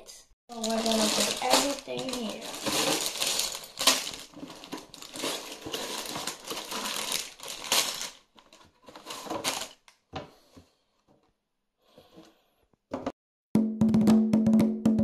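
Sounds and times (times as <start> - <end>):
plastic bags crinkling: 0.5 - 9.9.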